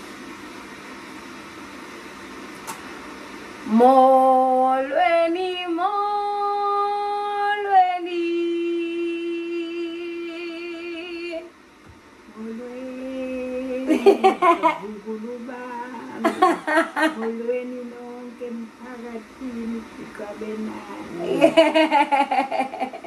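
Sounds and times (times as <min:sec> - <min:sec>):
laughter: 0:13.9 - 0:14.8, 0:16.2 - 0:17.4, 0:21.4 - 0:23.0.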